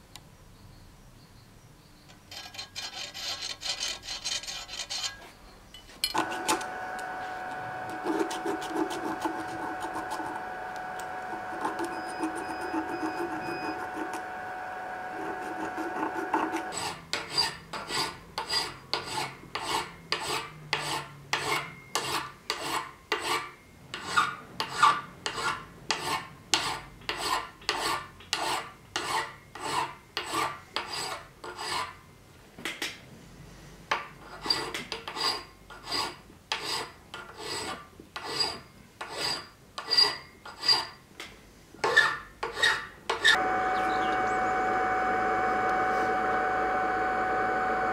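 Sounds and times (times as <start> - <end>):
light scraping: 2.1 - 6.6
hand file rasping on metal: 2.3 - 5.2, 7.9 - 10.5, 11.3 - 14.3, 15.2 - 32.0, 34.2 - 41.0, 41.8 - 43.4
steady hum: 6.2 - 16.7, 43.4 - 47.9.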